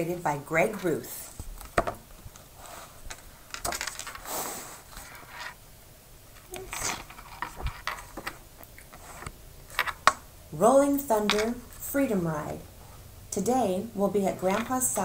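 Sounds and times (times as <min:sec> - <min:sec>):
book pages turning: 0:04.9 - 0:05.6, 0:06.4 - 0:10.0.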